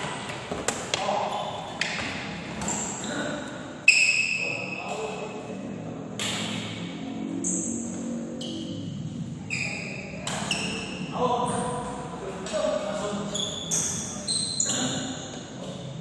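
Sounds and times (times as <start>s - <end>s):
sneakers squealing on court floor: 1.2s - 4.9s, 9.5s - 11.8s, 13.2s - 15.4s.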